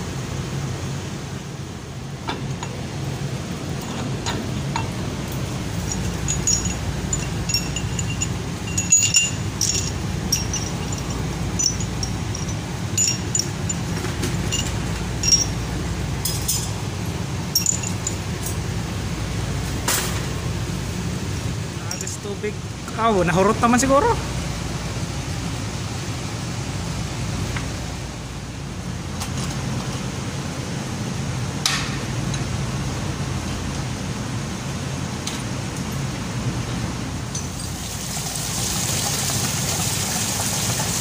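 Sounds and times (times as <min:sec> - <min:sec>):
steady low hum: 0:00.0 - 0:37.5
metal bolts clinking: 0:03.8 - 0:16.8, 0:17.5 - 0:18.6.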